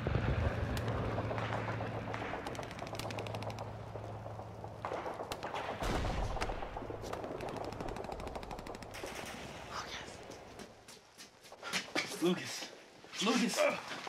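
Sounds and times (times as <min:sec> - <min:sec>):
low boom: 0:00.0 - 0:09.9
steady low hum: 0:00.0 - 0:11.6.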